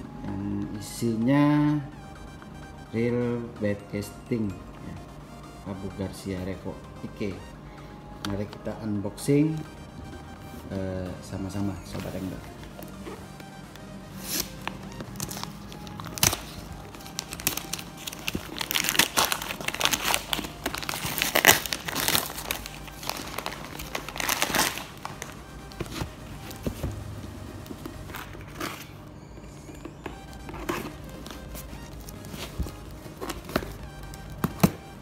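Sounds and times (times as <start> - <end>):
background music: 0.0 - 35.0
packing tape crinkling and tearing: 14.2 - 26.6.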